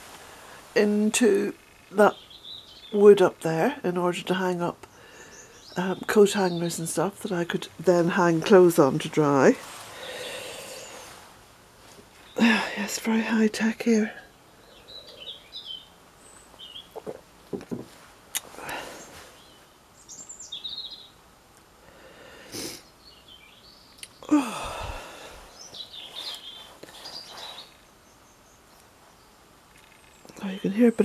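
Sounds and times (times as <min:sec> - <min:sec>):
small birds chirping: 0:00.3 - 0:11.3, 0:11.9 - 0:31.0
coat fabric rustling: 0:08.2 - 0:12.4, 0:25.4 - 0:27.9.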